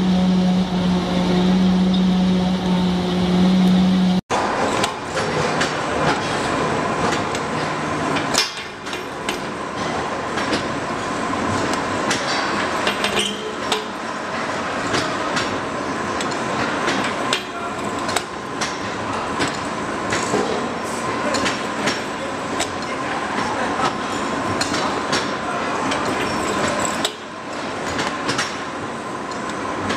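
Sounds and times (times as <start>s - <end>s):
machine whine: 0.0s - 4.8s.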